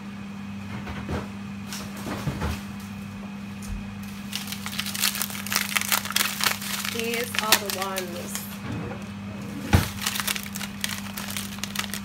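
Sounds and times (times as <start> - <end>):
steady low hum: 0.0 - 12.0
freezer items knocking: 3.7 - 9.0, 9.6 - 12.0
plastic bag crinkling: 4.0 - 8.6, 9.6 - 12.0.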